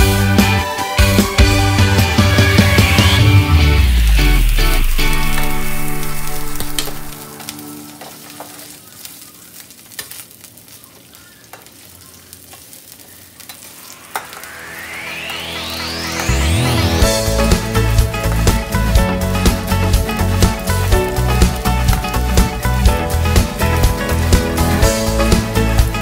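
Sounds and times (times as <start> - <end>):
background music: 0.0 - 8.7, 14.0 - 26.0
vegetables sizzling in oil: 3.9 - 26.0.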